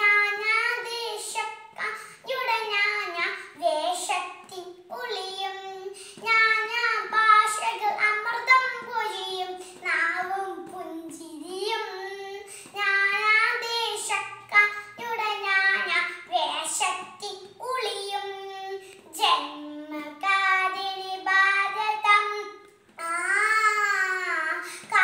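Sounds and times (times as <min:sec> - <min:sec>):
girl singing: 0:00.0 - 0:25.0.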